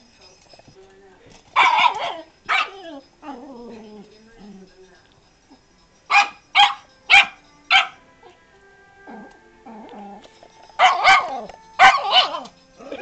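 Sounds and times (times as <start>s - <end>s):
puppy yipping: 1.6s - 3.4s, 6.1s - 8.0s.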